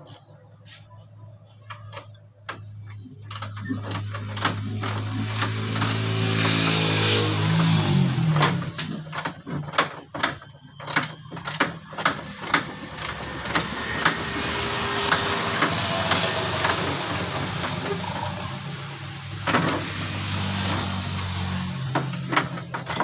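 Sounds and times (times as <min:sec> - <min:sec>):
ratchet wrench clicking: 0:03.3 - 0:06.7.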